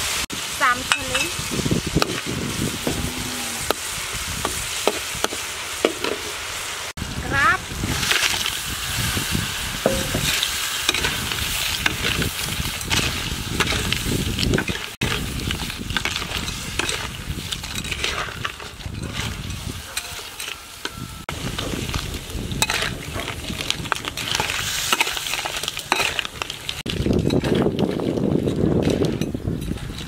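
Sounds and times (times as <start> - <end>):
crabs sizzling in hot oil: 0.0 - 27.6
metal spatula scraping a wok: 7.9 - 22.0, 22.6 - 26.7.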